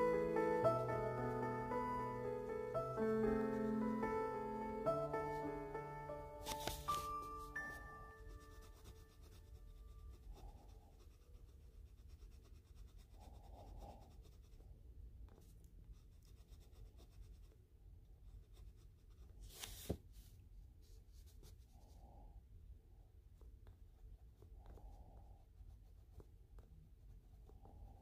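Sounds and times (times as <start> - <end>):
coloured pencil scratching on paper: 6.6 - 17.6, 18.2 - 19.9, 23.9 - 28.0.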